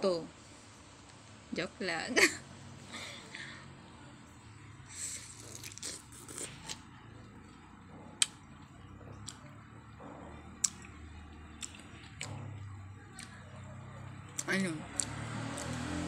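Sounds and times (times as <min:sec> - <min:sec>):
chewing crunchy fruit: 0:04.9 - 0:16.0.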